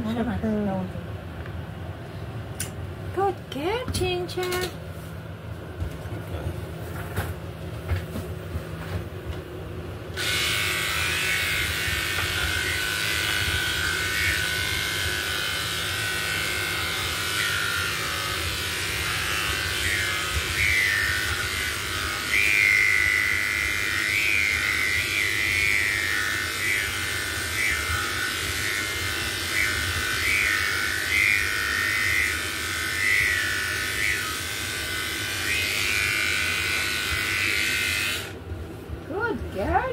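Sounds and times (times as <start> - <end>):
electric hair clippers running: 10.1 - 38.4.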